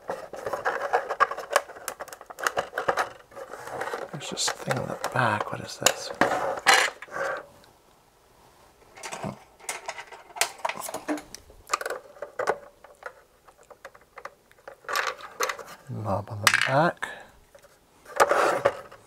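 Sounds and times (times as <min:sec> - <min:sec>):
plastic radio handling knocks and scrapes: 0:00.0 - 0:07.4, 0:18.1 - 0:19.0.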